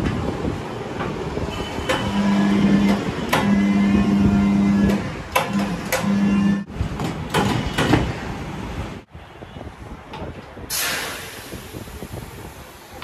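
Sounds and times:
clacks of metal and rubber: 0:01.9 - 0:03.6, 0:04.8 - 0:06.3, 0:06.9 - 0:08.2.

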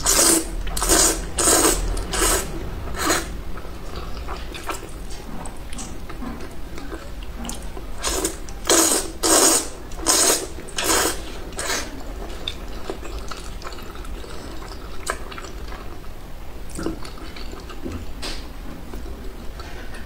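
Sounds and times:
person slurping noodles: 0:00.0 - 0:03.3, 0:08.0 - 0:12.1
wet chewing: 0:00.0 - 0:16.1, 0:16.7 - 0:19.7.

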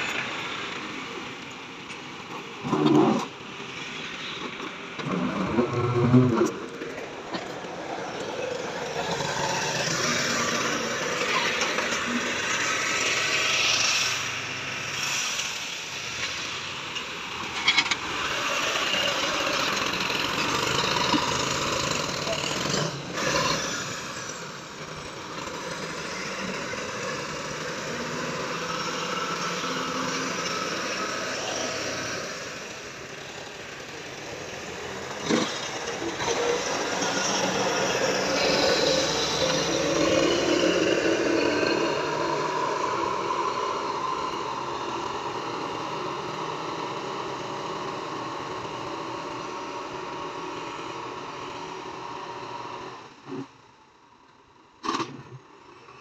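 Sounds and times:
tractor diesel engine running: 0:18.0 - 0:40.0.

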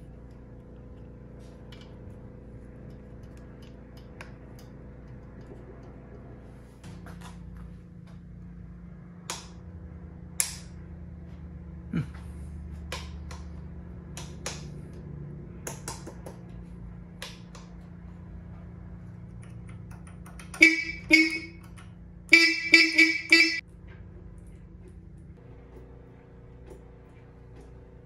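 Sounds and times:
electric horn toots: 0:20.6 - 0:21.6, 0:22.3 - 0:23.6.

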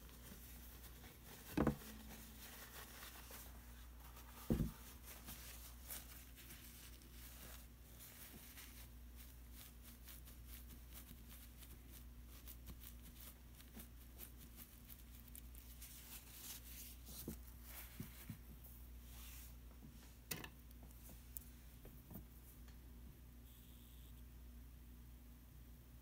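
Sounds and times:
paintbrush strokes on paper: 0:00.0 - 0:20.1
low steady hum: 0:00.0 - 0:26.0.

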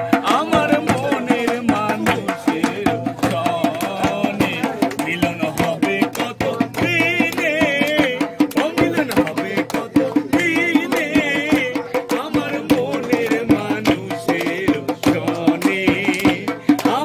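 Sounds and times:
barrel drum beating: 0:00.0 - 0:17.0
group folk singing: 0:00.0 - 0:17.0
hand-clapping: 0:00.2 - 0:17.0.

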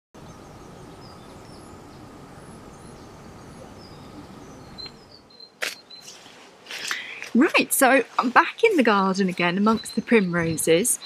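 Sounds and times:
faint bird chirps: 0:00.2 - 0:06.4, 0:09.6 - 0:11.0
steady low background noise: 0:00.2 - 0:11.0.

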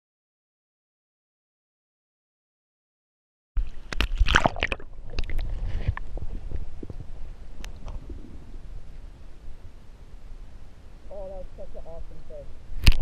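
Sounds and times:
microphone rumbling and clicks: 0:03.6 - 0:09.0, 0:12.7 - 0:13.0
flowing river water: 0:03.6 - 0:12.9.

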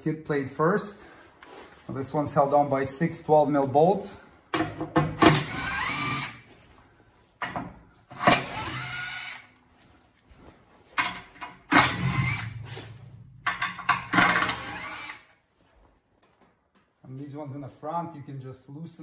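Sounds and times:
impact driver whine and rattle: 0:05.2 - 0:06.4, 0:08.2 - 0:09.5, 0:11.7 - 0:12.8, 0:13.4 - 0:15.3.

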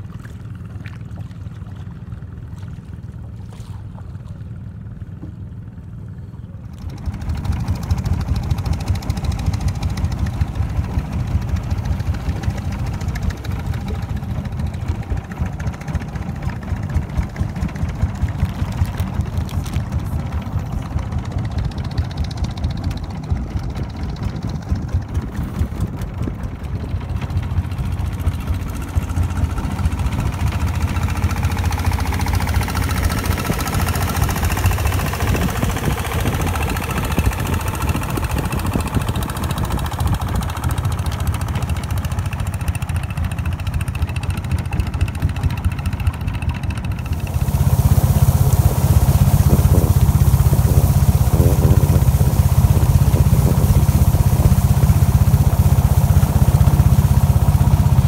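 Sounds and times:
boat engine thumping: 0:00.0 - 0:58.0
wind: 0:00.0 - 0:58.0
rushing water: 0:46.9 - 0:58.0.

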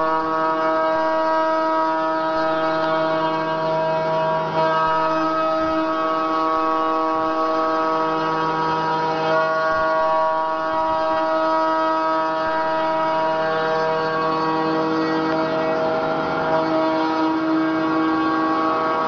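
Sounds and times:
machine spindle whine: 0:00.0 - 0:19.0.

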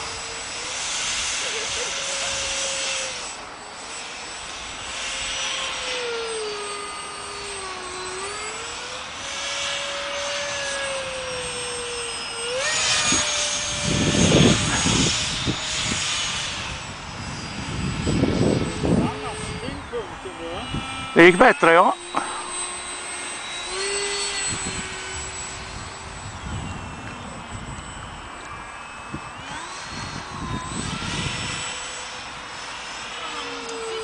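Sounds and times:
electric motor whining: 0:00.0 - 0:34.0
wind rumbling on microphone: 0:05.1 - 0:21.6, 0:22.3 - 0:34.0.

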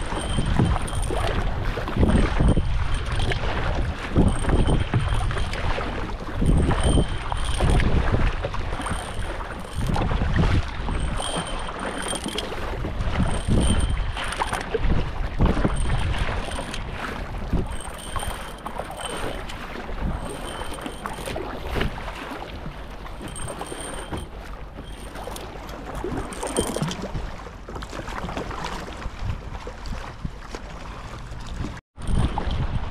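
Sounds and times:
water sloshing: 0:00.0 - 0:32.5
paddle strokes in water: 0:00.0 - 0:32.9
wind buffeting microphone: 0:00.0 - 0:32.9.

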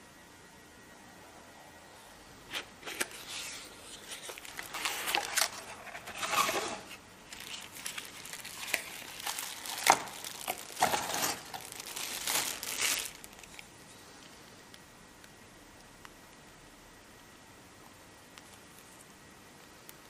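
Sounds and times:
plastic wrapping crinkling: 0:02.5 - 0:13.7.

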